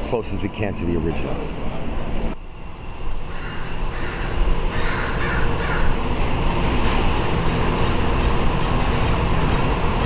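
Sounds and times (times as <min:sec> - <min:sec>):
street noise rumble: 0:00.0 - 0:10.0
harsh crow-like caws: 0:03.3 - 0:06.0.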